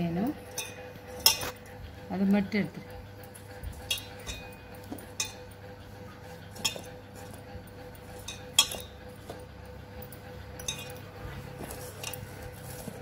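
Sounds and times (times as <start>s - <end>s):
metallic clinks against steel bowl: 0.4s - 1.7s, 3.3s - 5.6s, 6.5s - 7.3s, 7.9s - 12.6s.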